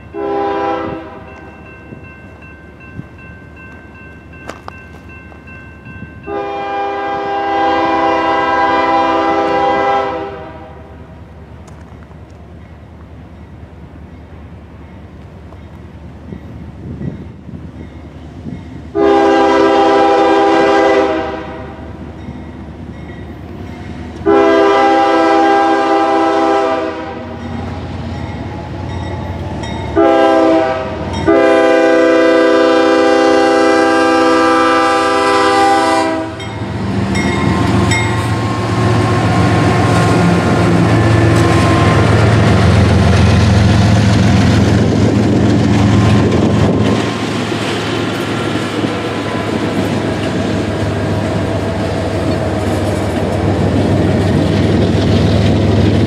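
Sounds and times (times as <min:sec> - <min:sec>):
diesel locomotive passing: 0:00.0 - 0:56.0
train cars rumbling on rails: 0:00.0 - 0:56.0
locomotive air horn blasts: 0:00.1 - 0:01.3, 0:06.2 - 0:11.0, 0:18.9 - 0:21.8, 0:24.2 - 0:27.4, 0:29.9 - 0:36.7.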